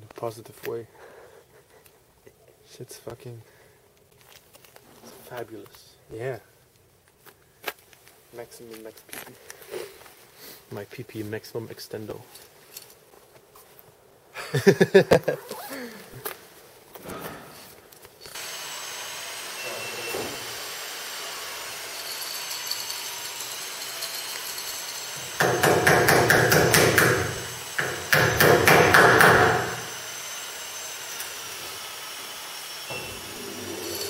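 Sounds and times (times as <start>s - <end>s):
low workshop background: 0.0s - 34.0s
power tool rattling: 18.3s - 31.5s, 32.9s - 34.0s.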